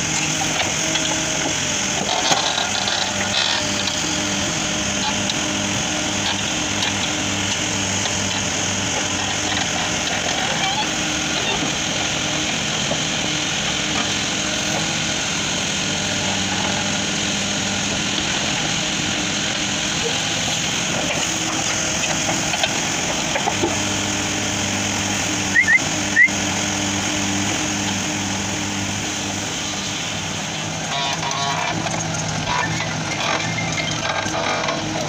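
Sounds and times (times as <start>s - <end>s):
diesel engine running: 0.0s - 35.0s
short high rising chirps: 25.5s - 26.4s.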